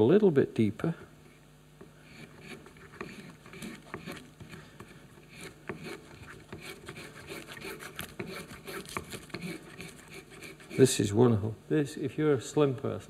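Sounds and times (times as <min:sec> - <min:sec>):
spokeshave scraping wood: 0:02.0 - 0:11.0.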